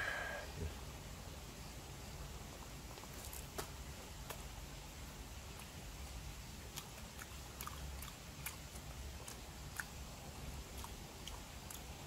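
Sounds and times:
wet chewing clicks and smacks: 6.6s - 12.0s.

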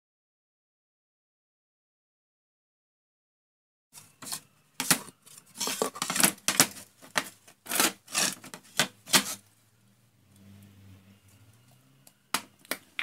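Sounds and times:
wooden boards scraping and knocking: 4.2s - 9.4s.

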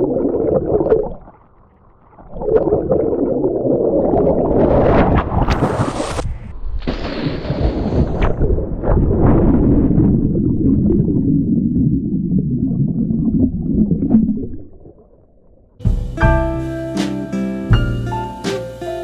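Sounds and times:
muffled underwater rushing and bubbling: 0.0s - 15.8s
person splashing into pool: 4.1s - 10.2s.

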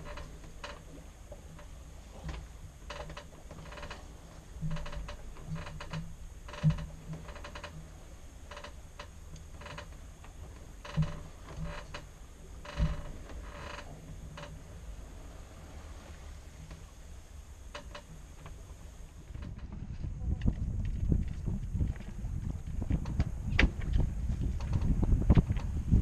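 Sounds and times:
steering wheel clicking and creaking: 1.6s - 7.8s, 8.5s - 14.5s, 19.3s - 25.8s.

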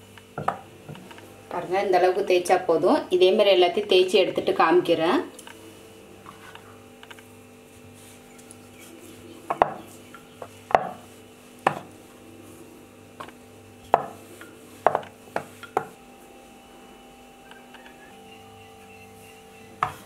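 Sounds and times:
rolling pin knocking on wood: 0.4s - 1.0s, 9.5s - 9.8s, 10.4s - 11.0s, 11.6s - 11.9s, 13.9s - 14.2s, 14.8s - 15.9s.

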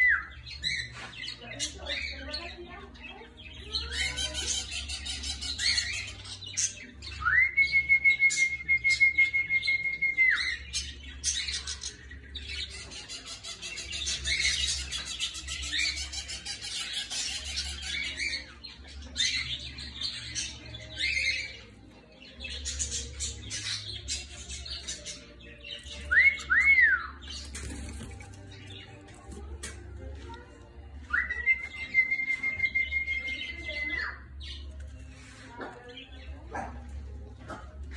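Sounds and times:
budgerigars warbling and chattering: 0.0s - 7.4s, 8.3s - 37.9s.

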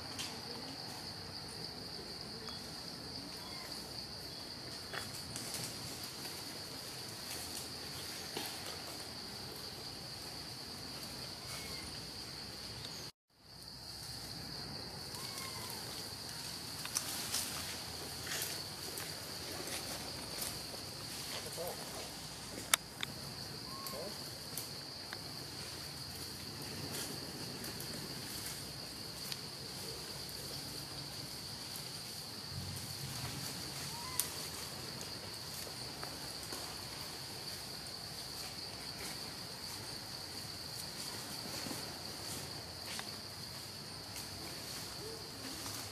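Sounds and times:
insects droning: 0.0s - 45.9s
faint chirps: 2.4s - 4.5s, 11.3s - 12.0s.

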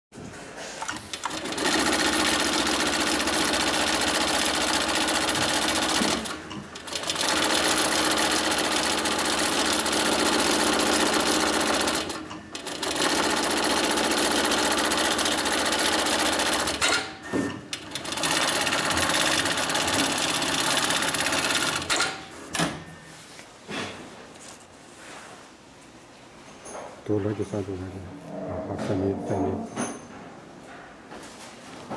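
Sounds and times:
sewing machine stitching: 0.8s - 22.2s.

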